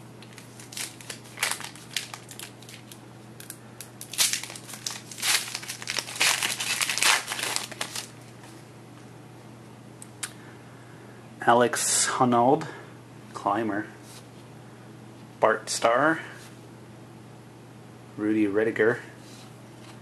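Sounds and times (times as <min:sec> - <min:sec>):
card pack wrapper crinkling: 0:00.2 - 0:08.3.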